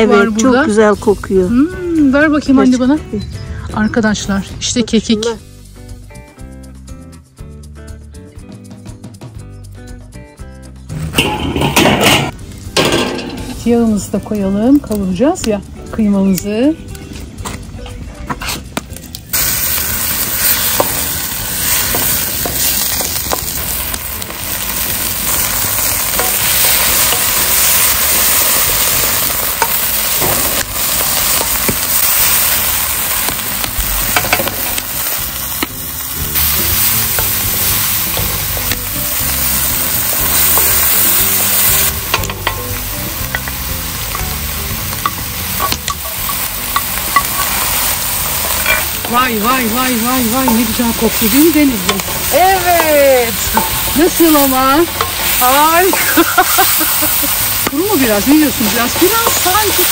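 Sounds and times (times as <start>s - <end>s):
meat sizzling in hot oil: 18.6s - 59.9s
wooden spoon scraping a pan: 47.2s - 56.7s.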